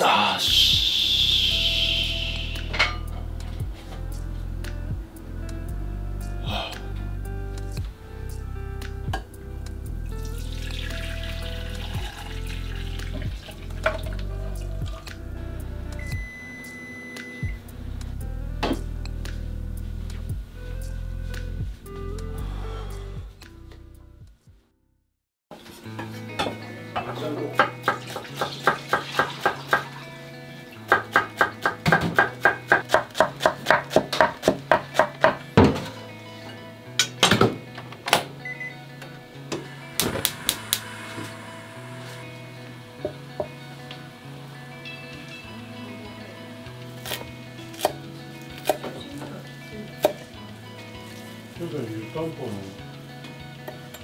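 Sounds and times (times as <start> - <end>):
background music with bass: 0.0 - 24.7, 25.7 - 54.0
broth pouring through strainer: 10.2 - 15.0
knife chopping on wooden board: 30.9 - 35.8.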